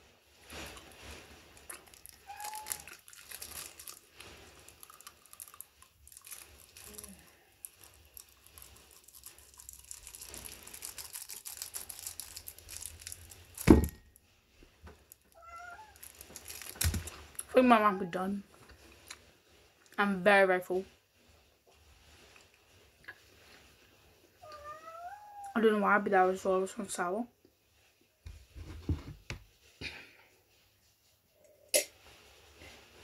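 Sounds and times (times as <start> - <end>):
plastic wrapper crinkling: 0.4 - 14.2, 14.9 - 17.7
biting and chewing: 0.7 - 13.9.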